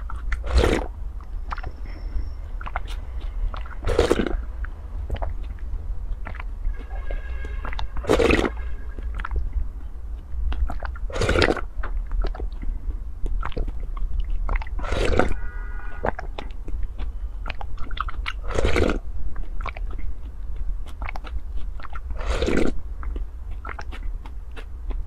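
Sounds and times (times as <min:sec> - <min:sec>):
person slurping sauce: 0:00.0 - 0:00.9, 0:02.6 - 0:04.5, 0:06.3 - 0:09.4, 0:10.7 - 0:11.7, 0:14.6 - 0:16.4, 0:17.5 - 0:19.1, 0:21.1 - 0:22.8
wet mouth clicks of chewing: 0:00.0 - 0:25.0.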